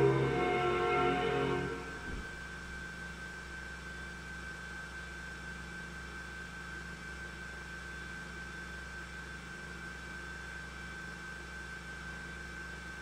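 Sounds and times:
high-pitched whine: 0.0s - 3.6s
low hum: 0.0s - 3.6s.

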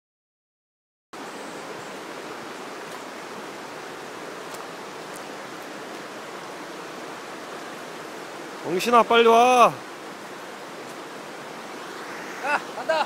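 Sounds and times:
river water flowing over stones: 1.2s - 13.0s.

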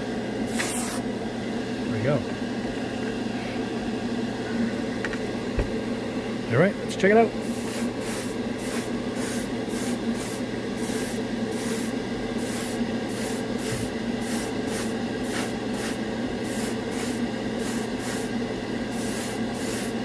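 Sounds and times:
steady low hum: 0.0s - 20.0s
airbrush spraying bursts of hiss: 0.5s - 1.0s, 7.4s - 18.3s, 18.9s - 20.0s.

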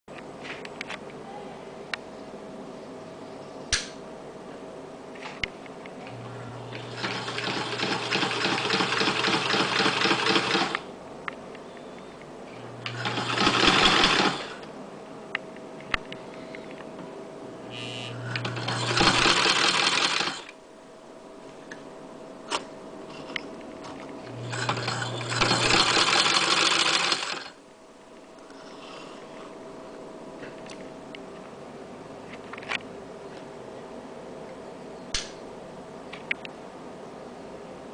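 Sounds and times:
sewing machine stitching: 6.8s - 10.8s, 12.8s - 14.6s, 17.8s - 20.5s, 24.4s - 27.6s
sewing machine clicks: 6.9s - 10.8s, 24.5s - 27.5s.

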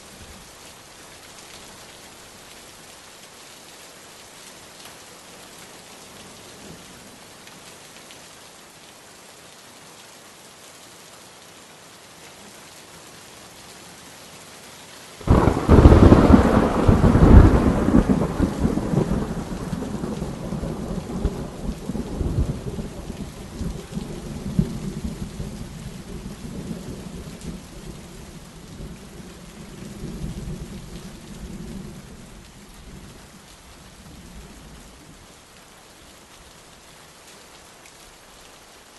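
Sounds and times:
steady rain: 0.0s - 38.9s
thunder clap rumbling: 15.2s - 25.2s.

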